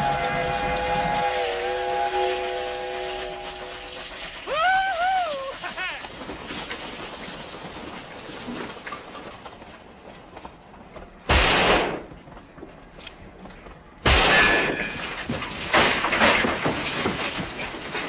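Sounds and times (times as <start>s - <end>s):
loud gunshots with echo: 11.3s - 12.1s, 14.0s - 15.0s
smaller sharp bangs: 11.3s - 12.2s, 14.0s - 17.5s.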